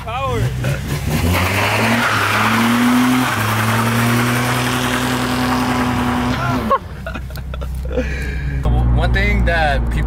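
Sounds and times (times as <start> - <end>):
car engine revving high: 0.3 - 6.7.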